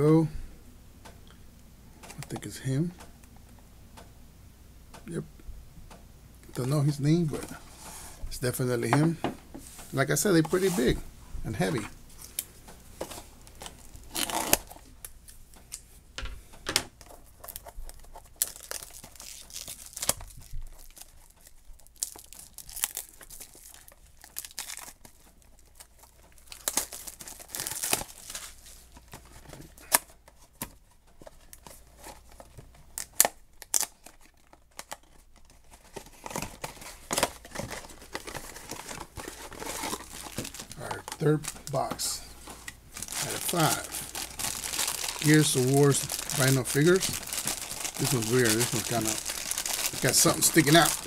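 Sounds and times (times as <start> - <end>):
foil bag tearing and crinkling: 13.2 - 14.8, 17.0 - 30.0, 33.0 - 42.2, 42.9 - 51.0.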